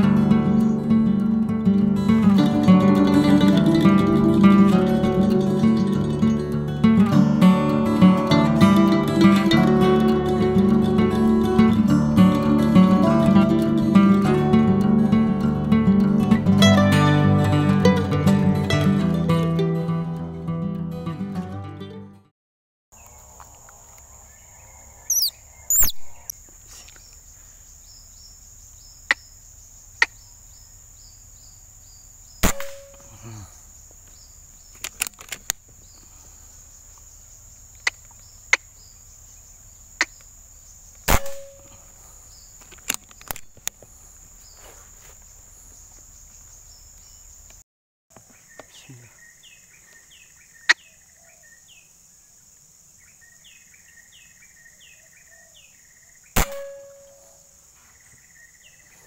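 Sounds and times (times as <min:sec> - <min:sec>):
short chirps: 0:25.1 - 0:26.3
air rifle shots: 0:32.4 - 0:33.1, 0:41.1 - 0:41.7, 0:56.4 - 0:57.1.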